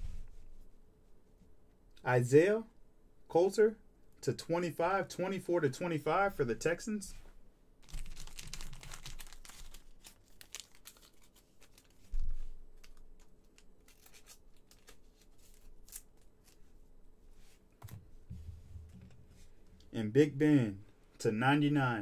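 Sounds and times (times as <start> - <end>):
plastic sleeve crinkling: 7.8 - 16.6.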